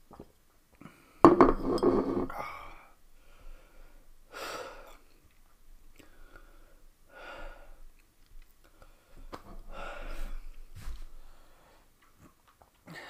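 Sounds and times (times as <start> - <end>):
man breathing out heavily: 8.9 - 10.6.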